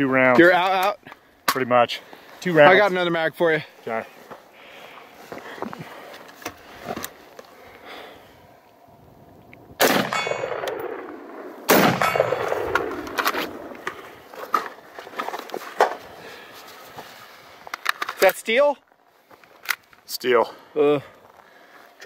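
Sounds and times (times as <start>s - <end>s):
magazine loading clicks: 9.8s - 11.0s, 19.5s - 20.0s
rifle shots ringing: 9.8s - 14.4s.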